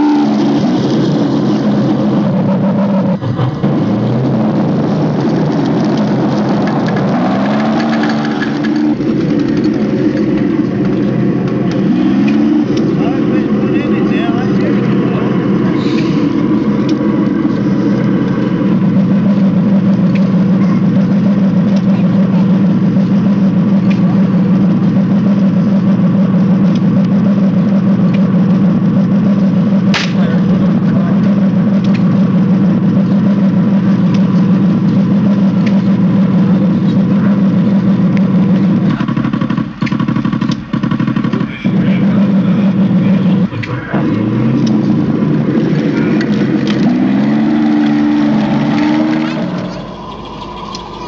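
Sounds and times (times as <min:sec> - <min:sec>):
model tank engine drone: 0:00.0 - 0:51.0
sharp click: 0:29.9 - 0:30.3.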